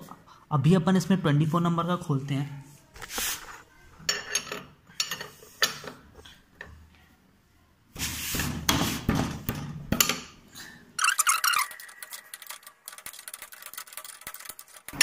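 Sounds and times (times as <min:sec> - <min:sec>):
rapid metallic clicking: 0:11.0 - 0:15.0.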